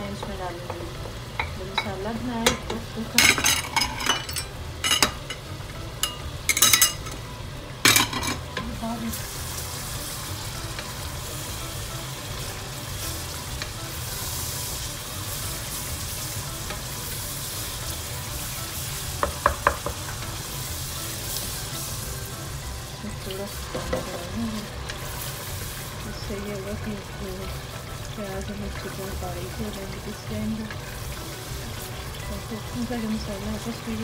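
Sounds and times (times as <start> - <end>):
onions sizzling in pot: 0.0 - 34.0
spatula clacking against pot: 19.1 - 20.3.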